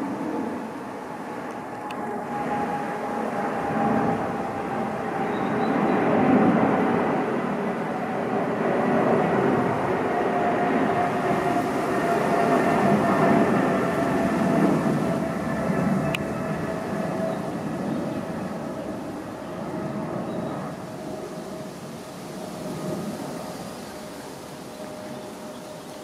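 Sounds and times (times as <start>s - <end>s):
jet engines rumbling and whining: 0.0s - 26.0s.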